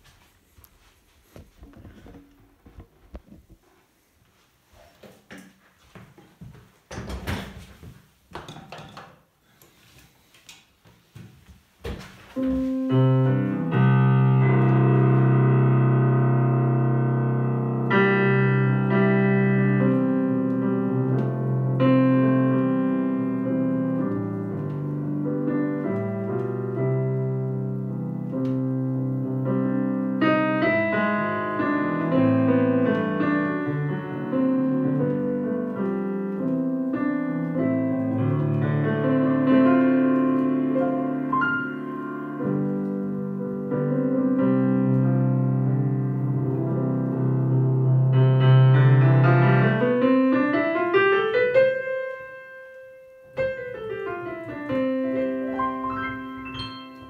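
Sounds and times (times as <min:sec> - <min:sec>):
digital piano chords and melody: 0:12.4 - 0:57.0.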